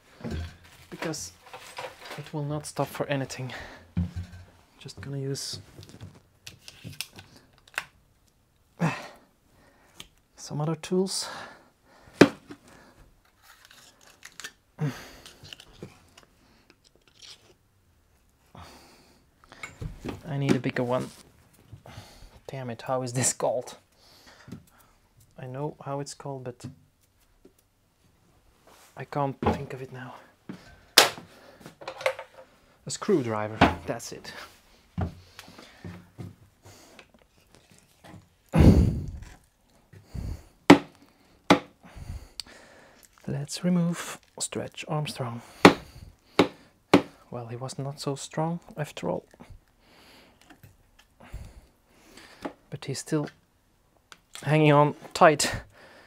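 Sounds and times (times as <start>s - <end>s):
hand tools clicking and scraping: 0.2s - 2.4s.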